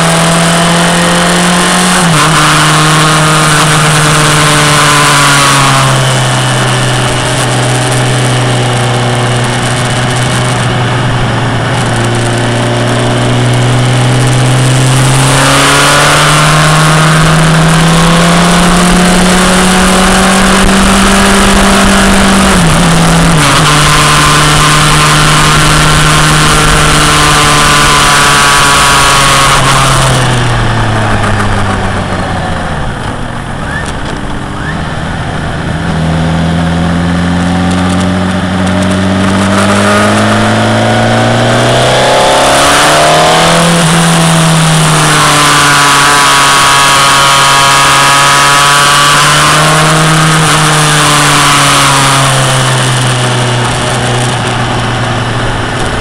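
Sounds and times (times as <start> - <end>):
motorcycle engine at speed: 0.0 - 56.0
wind rush: 3.7 - 46.0.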